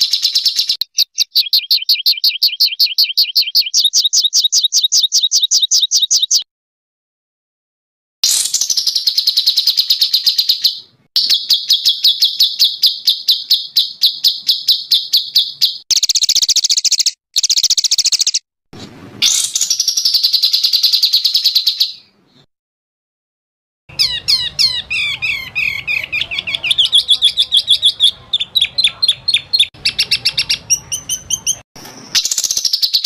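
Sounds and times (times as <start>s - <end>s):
songbird trills: 0.0s - 6.4s, 8.2s - 18.4s, 23.9s - 33.0s.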